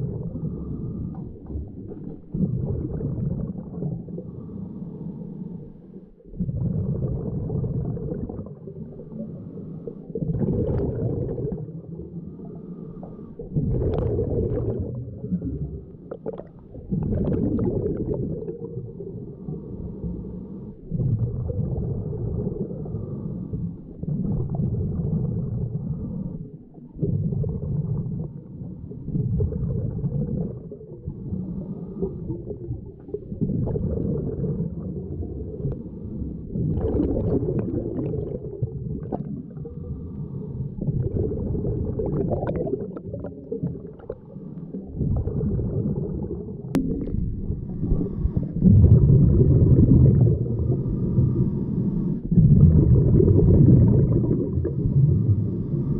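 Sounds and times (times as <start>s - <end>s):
exhaled bubbles gurgling underwater: 0.0s - 55.9s
diver inhaling through regulator: 0.2s - 1.4s, 12.2s - 13.6s, 22.6s - 23.9s, 31.1s - 33.1s, 39.4s - 41.2s, 47.4s - 52.4s, 53.4s - 55.9s.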